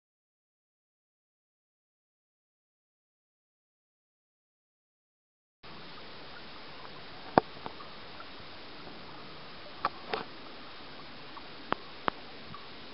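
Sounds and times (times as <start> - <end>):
faint hiss: 5.6 - 12.9.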